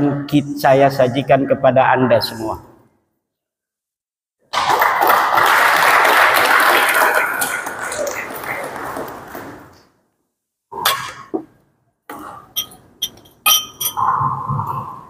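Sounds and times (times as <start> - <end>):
audience applauding: 4.5 - 9.8.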